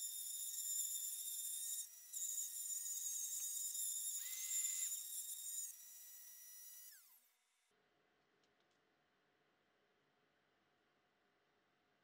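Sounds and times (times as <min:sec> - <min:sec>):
rotary tool high-pitched whine: 0:00.0 - 0:07.7.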